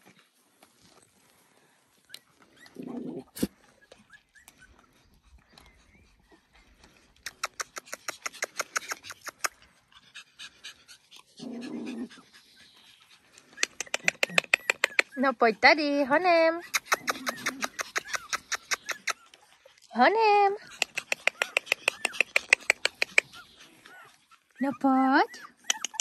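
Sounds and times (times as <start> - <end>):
dog panting: 3.8 - 26.0
dog growling: 11.2 - 12.5, 16.8 - 19.0.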